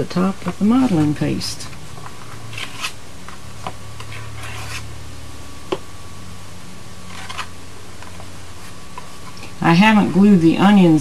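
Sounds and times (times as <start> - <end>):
low tape hum: 0.0 - 11.0
brush scratchy rubbing strokes: 4.0 - 4.9.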